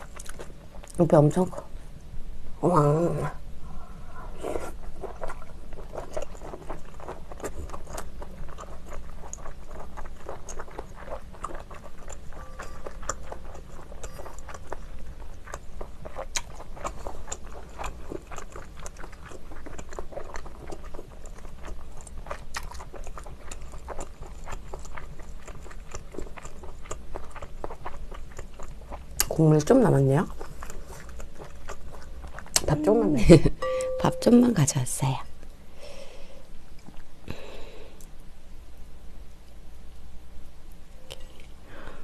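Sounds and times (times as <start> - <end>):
close chewing with wet mouth clicks: 0.0 - 1.6, 4.6 - 32.8.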